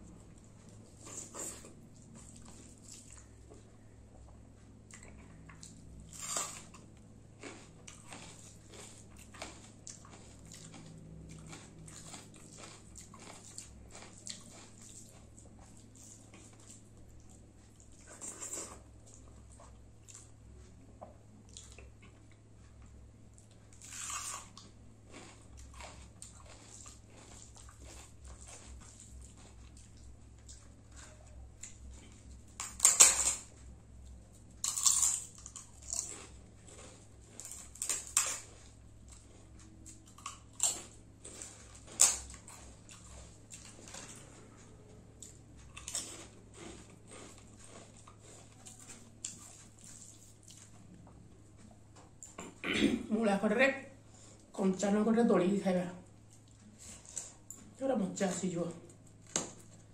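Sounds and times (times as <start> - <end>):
person chewing and smacking: 0.0 - 52.6, 56.1 - 57.8.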